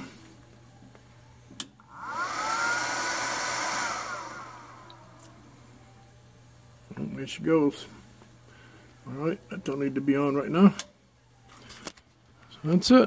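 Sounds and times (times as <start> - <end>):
cooling fan whirring: 1.6 - 11.9.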